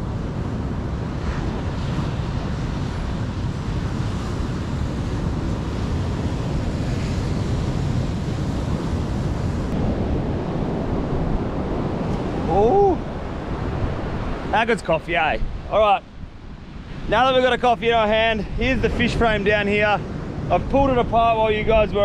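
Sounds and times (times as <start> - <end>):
ocean surf breaking: 0.0 - 22.0
wind buffeting microphone: 0.0 - 22.0.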